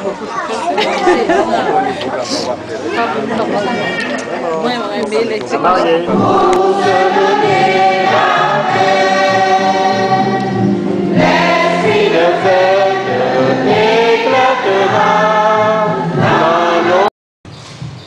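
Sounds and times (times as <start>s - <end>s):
church choir singing a hymn: 5.8s - 17.1s.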